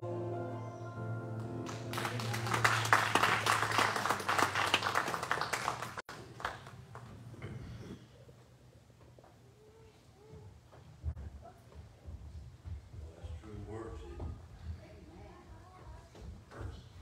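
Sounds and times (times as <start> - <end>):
congregation clapping: 1.4 - 7.3.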